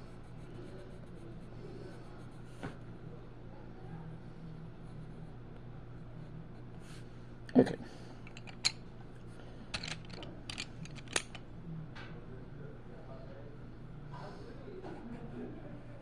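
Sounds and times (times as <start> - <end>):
steady low hum: 0.0 - 16.0
wooden pencils clicking together: 9.7 - 11.4.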